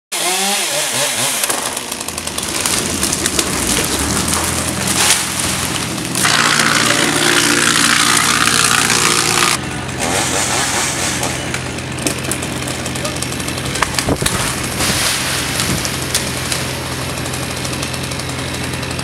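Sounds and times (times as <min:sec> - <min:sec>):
wood crunching and splintering: 0:00.2 - 0:19.0
engine running: 0:00.6 - 0:19.0.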